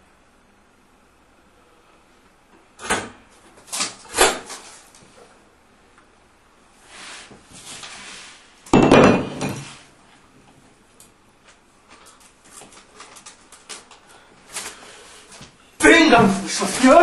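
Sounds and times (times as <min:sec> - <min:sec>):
paper crackling: 0:12.0 - 0:17.0
paper rustling: 0:12.0 - 0:17.0.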